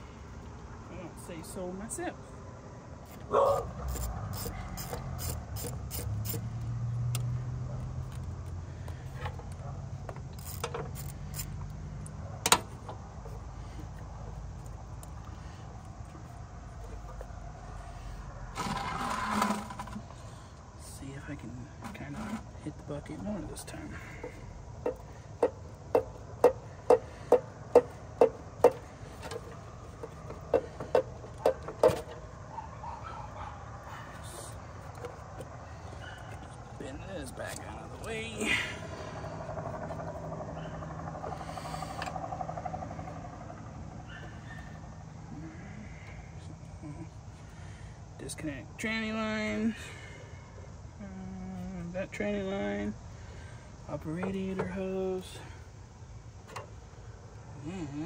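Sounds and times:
ratchet wrench clicking: 3.9s - 7.3s, 10.4s - 12.1s.

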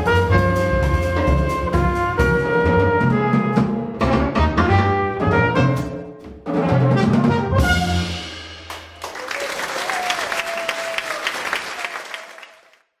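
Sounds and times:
double bass ringing: 0.0s - 6.0s
jazz quartet playing: 0.0s - 9.0s
audience applauding: 8.7s - 13.0s.

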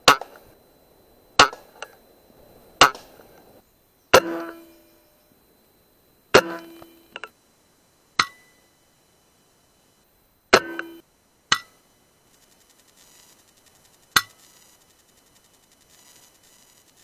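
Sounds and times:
air rifle shots: 1.4s - 1.9s, 2.8s - 3.3s.

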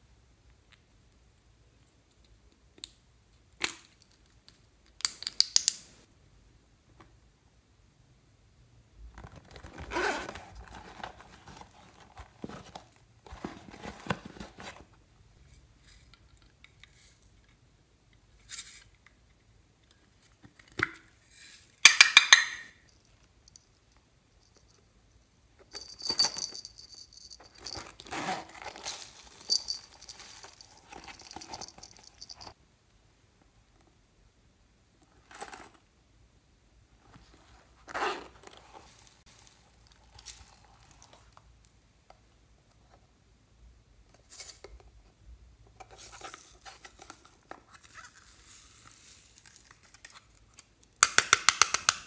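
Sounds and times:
plastic cases rustling and scraping: 9.1s - 15.0s, 25.7s - 32.6s
small jingle bell ringing: 25.7s - 28.0s, 29.2s - 32.6s.

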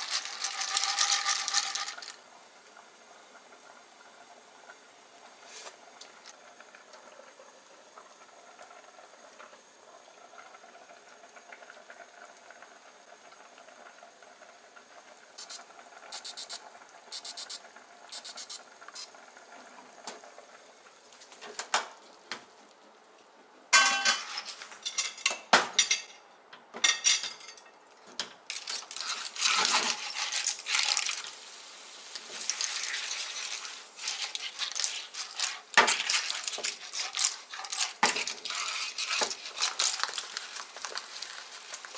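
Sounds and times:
clams simmering in a pan: 0.0s - 16.0s, 28.5s - 41.9s
spaghetti sizzling: 0.0s - 16.6s, 28.5s - 41.9s.

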